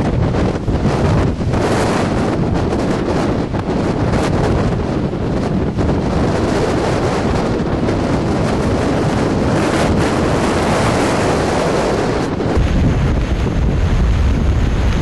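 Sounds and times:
waterfall roar: 0:00.0 - 0:15.0
wind buffeting microphone: 0:00.0 - 0:15.0
deep low rumble: 0:12.1 - 0:15.0.

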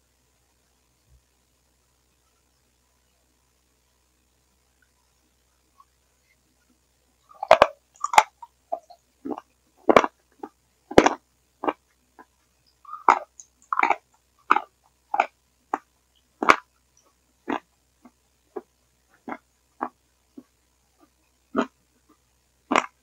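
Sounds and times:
chewing and mouth smacks: 0:07.3 - 0:10.1, 0:12.9 - 0:15.3.

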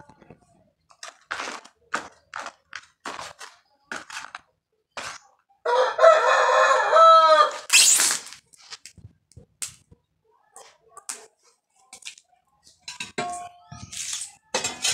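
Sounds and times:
hands scooping soil into bucket: 0:00.9 - 0:05.3
rooster crowing: 0:05.7 - 0:07.7.

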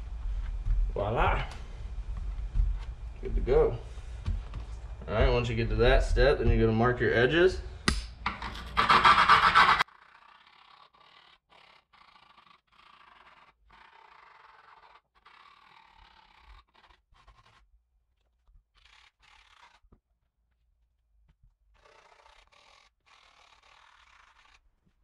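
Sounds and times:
screwdriver scraping griptape: 0:08.3 - 0:17.6.

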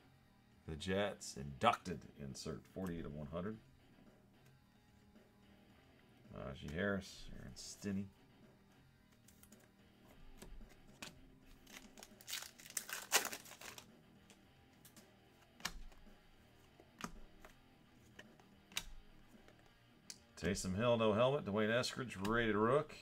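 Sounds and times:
cards clicking: 0:09.1 - 0:20.6, 0:22.2 - 0:22.6
wrapper crinkling and tearing: 0:11.5 - 0:13.9.

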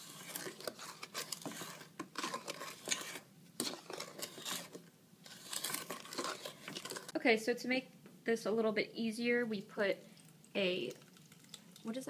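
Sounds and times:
wooden spoon scraping bowl: 0:00.0 - 0:07.2.

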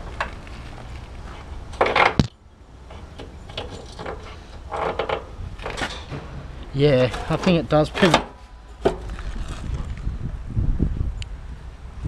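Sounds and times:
steel clanks and scrapes: 0:02.9 - 0:09.9.

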